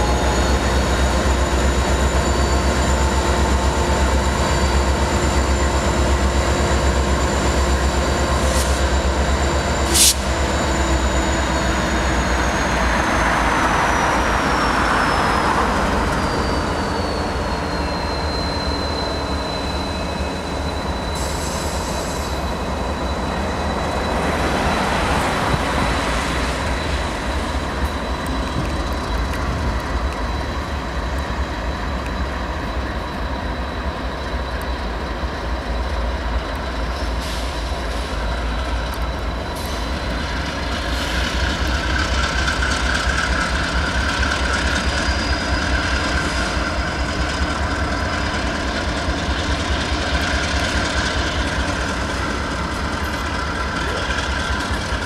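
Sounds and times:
diesel locomotive engine rumble: 0.0s - 55.0s
high-pitched squeal: 0.0s - 55.0s
rail noise: 0.0s - 55.0s.

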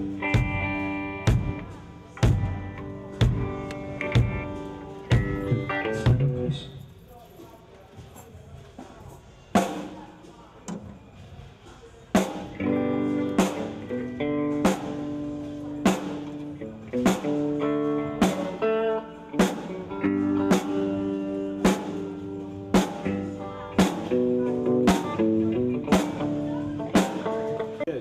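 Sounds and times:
guitar strumming chords: 0.0s - 6.6s, 12.5s - 28.0s.

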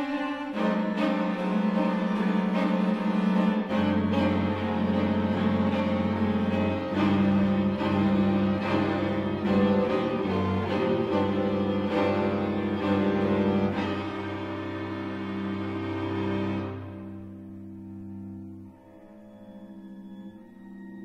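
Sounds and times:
slow bowed string music: 0.0s - 21.0s.

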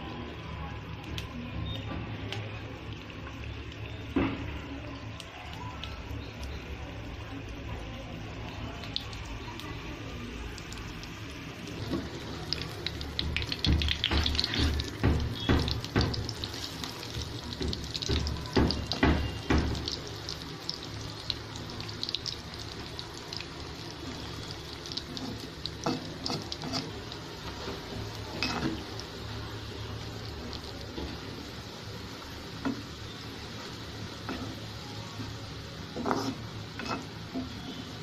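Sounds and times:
deep-frying sizzle with pops: 0.0s - 38.0s
metal spoon scraping pan: 25.2s - 26.9s, 28.3s - 28.8s, 35.9s - 37.7s.

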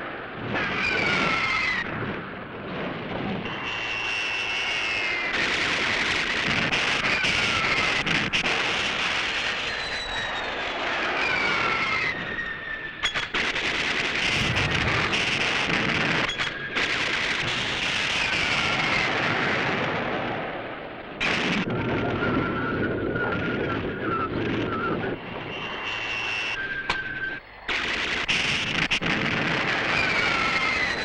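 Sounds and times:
jet engine noise: 0.0s - 31.0s
rapid gunfire: 14.2s - 17.2s
explosions: 14.2s - 17.6s.

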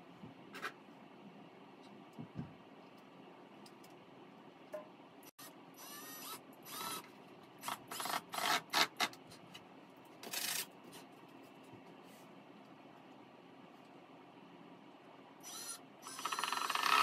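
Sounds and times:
cordless drill motor: 5.4s - 8.6s, 15.4s - 17.0s.

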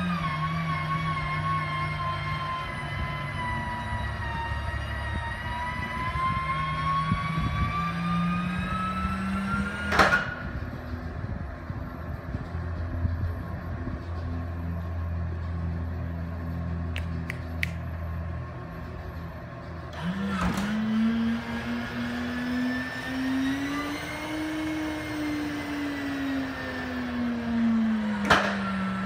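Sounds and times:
motor whine rising in pitch: 0.0s - 29.0s
loud clunk: 9.9s - 10.4s, 28.2s - 28.7s.

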